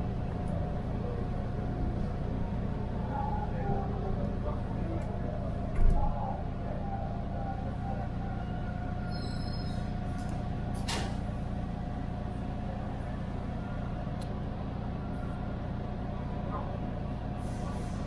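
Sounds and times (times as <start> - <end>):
train low hum: 0.0 - 18.0
faint high brake squeal: 9.0 - 10.0.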